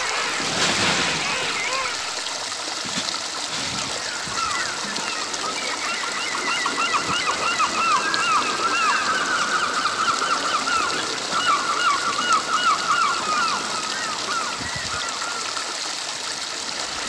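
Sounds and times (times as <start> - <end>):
stream rushing over rocks: 0.0 - 17.0
birds chirping: 3.7 - 15.5.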